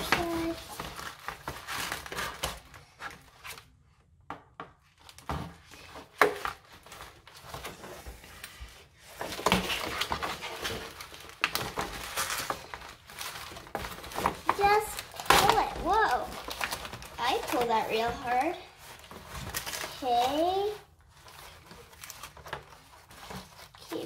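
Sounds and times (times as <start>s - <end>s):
plastic packaging crinkling: 0.0s - 3.7s, 9.0s - 24.0s.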